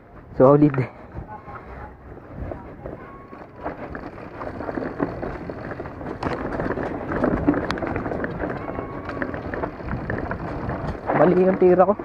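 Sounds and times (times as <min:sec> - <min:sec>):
bike tyres rolling on dirt: 0:00.0 - 0:12.0
wind on microphone: 0:01.0 - 0:12.0
rattling knocks from bike: 0:03.6 - 0:12.0.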